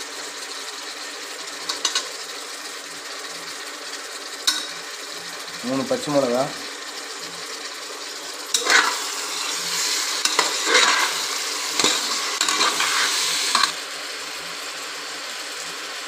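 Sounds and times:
vegetables sizzling in oil: 0.0s - 16.0s
metal spoon scraping a pot: 8.5s - 13.8s.

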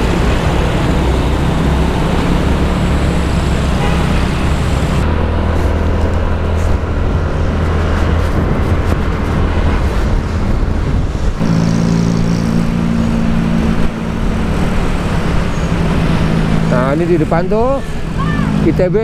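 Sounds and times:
wind noise on microphone: 4.6s - 16.5s.

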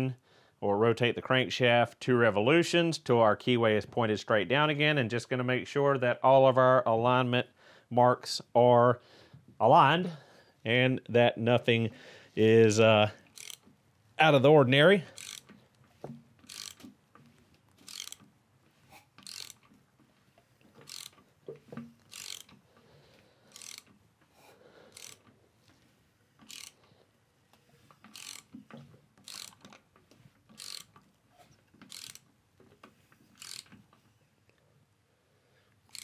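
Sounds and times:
ratchet wrench clicking: 13.3s - 13.7s, 15.1s - 15.6s, 16.4s - 16.9s, 17.8s - 18.3s, 19.2s - 19.7s, 20.8s - 21.2s, 22.1s - 22.6s, 23.5s - 24.0s, 24.9s - 25.3s, 26.4s - 26.8s, 28.1s - 28.6s, 29.2s - 29.8s, 30.5s - 31.0s, 31.8s - 32.3s, 33.3s - 33.8s.

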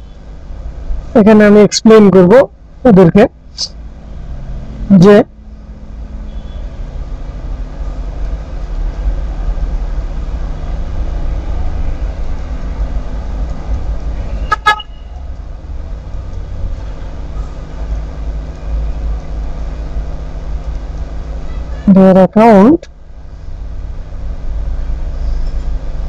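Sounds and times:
low background rumble: 0.0s - 26.0s
short horn toot: 6.2s - 6.8s, 14.3s - 15.2s.

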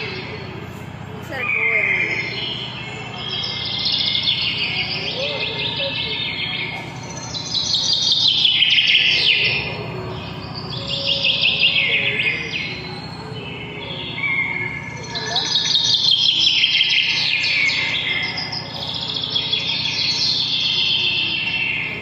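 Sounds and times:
small birds trilling: 0.0s - 22.0s.

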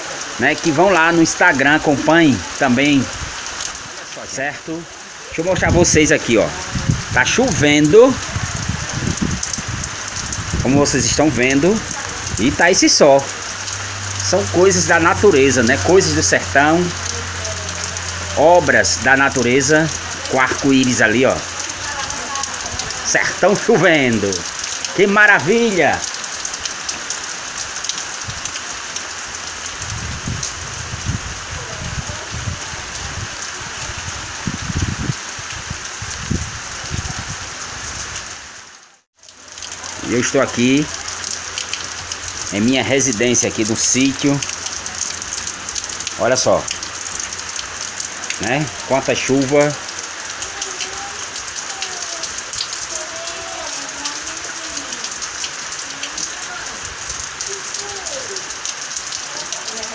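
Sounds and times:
light rain falling: 0.0s - 59.9s
low rumbles: 5.6s - 25.0s.

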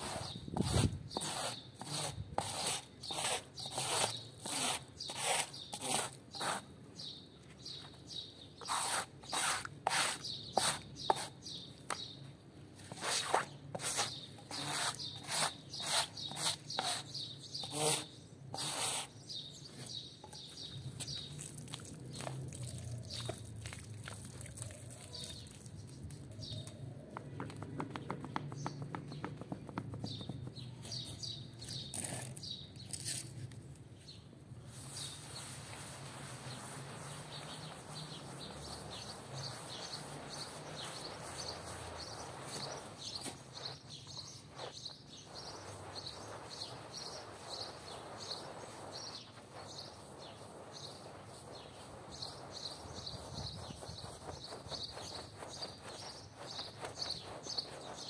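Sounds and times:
squeegee scraping wet floor: 0.0s - 6.7s, 7.6s - 11.6s, 12.8s - 26.6s, 34.7s - 58.0s
soft steady wash: 34.8s - 58.0s.

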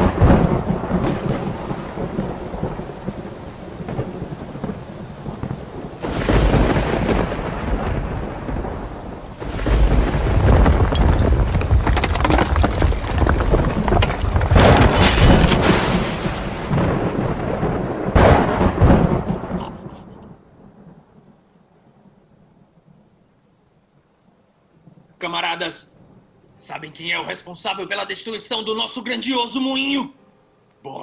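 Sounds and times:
thunder rolling: 0.0s - 21.5s
steady rain: 0.0s - 31.0s.

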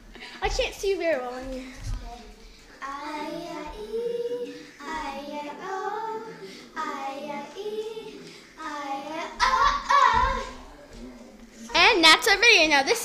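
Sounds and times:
girls singing: 2.7s - 11.8s.

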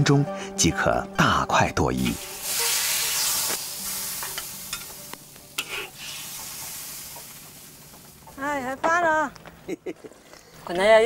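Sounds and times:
fish sizzling in boiling pot: 2.0s - 8.8s.

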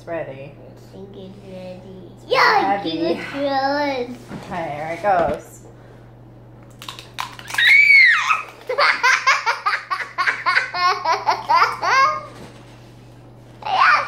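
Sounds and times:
boy laughing: 8.1s - 12.4s.

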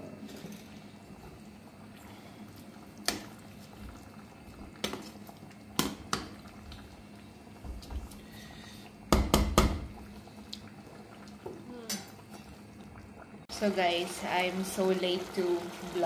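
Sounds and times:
pot simmering: 0.0s - 16.0s
metal ladle knocking on pot: 9.1s - 9.9s.

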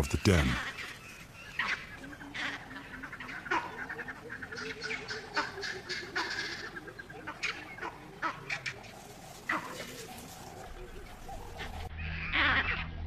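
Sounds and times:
monkeys chattering: 0.0s - 1.0s.

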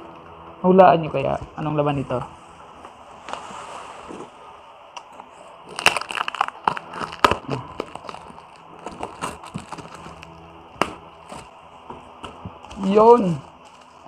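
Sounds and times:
blade cutting cardboard box: 6.7s - 11.6s.

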